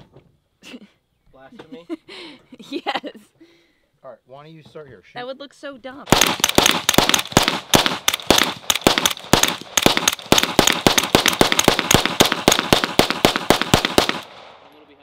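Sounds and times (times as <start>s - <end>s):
rifle rapid fire: 6.1s - 14.7s.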